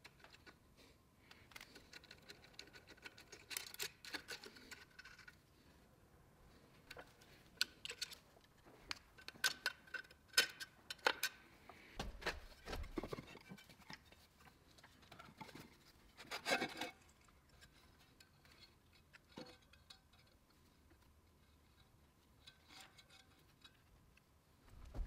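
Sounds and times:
dull thump: 24.7s - 25.0s.

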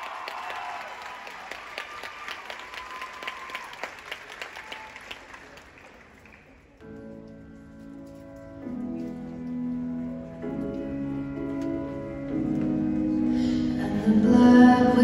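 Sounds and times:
audience applause and cheering: 0.0s - 6.8s.

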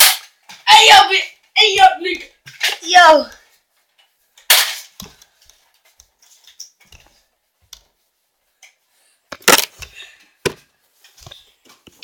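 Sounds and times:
small clicks and rustling: 2.4s - 8.9s.

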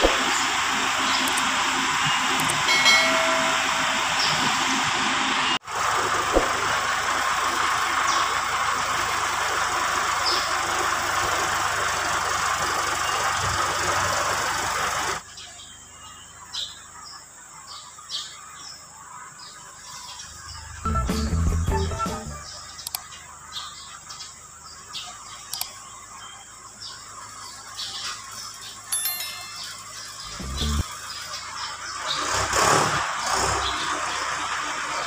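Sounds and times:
birds chirping: 0.0s - 5.6s, 10.0s - 11.2s, 12.0s - 35.0s
tractor engine running: 0.0s - 15.2s, 28.2s - 35.0s.

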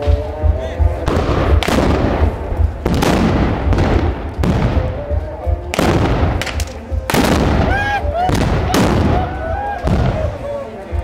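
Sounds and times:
musket blasts: 5.7s - 9.2s.

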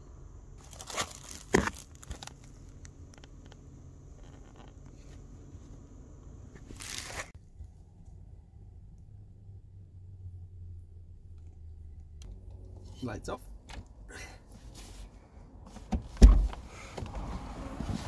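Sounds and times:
rustling and scraping handling noise: 3.4s - 5.8s, 6.5s - 7.4s, 14.6s - 15.9s.

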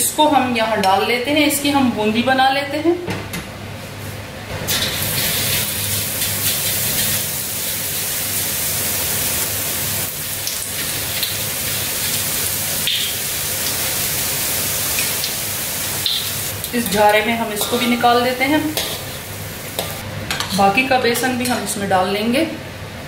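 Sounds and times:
batter sizzling in hot oil: 4.7s - 20.0s.

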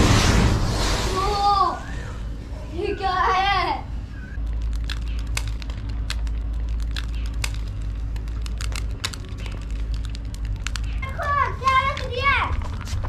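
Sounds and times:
low rumble: 0.0s - 3.2s
sharp pops and snaps: 4.4s - 12.9s
burning matches crackling: 4.4s - 13.0s.

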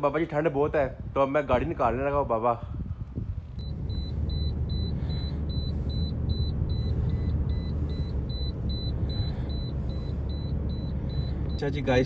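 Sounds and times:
car engine and road noise: 2.8s - 12.0s
high-pitched electronic beeps: 3.6s - 12.0s.

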